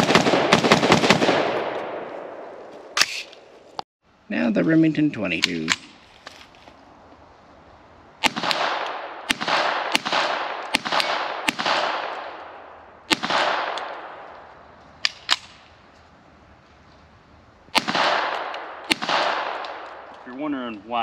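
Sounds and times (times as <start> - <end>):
gunshot cracks with echo: 8.2 - 14.3, 17.8 - 20.1.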